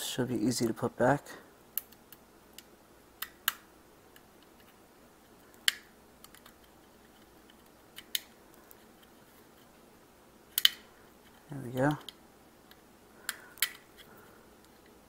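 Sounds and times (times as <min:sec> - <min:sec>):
plastic clips clicking: 0:10.6 - 0:10.8.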